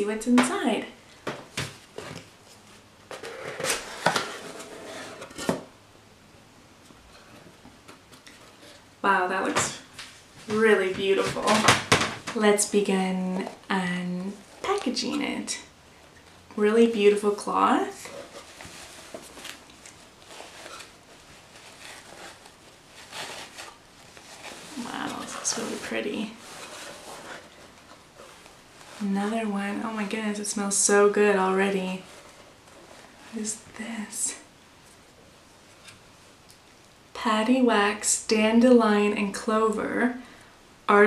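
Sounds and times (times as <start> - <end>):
cardboard box being opened: 18.0 - 29.0.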